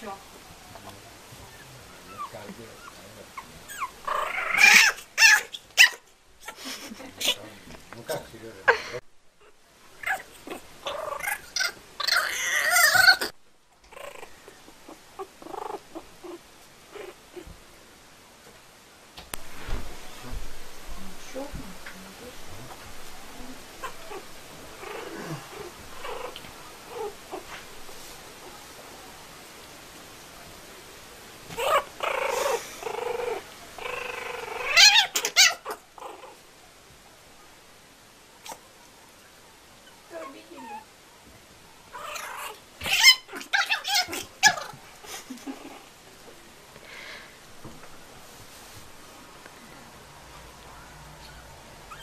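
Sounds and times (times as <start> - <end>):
kitten and puppy crying: 2.1 - 6.6, 9.4 - 14.3, 31.5 - 36.4, 41.9 - 44.8.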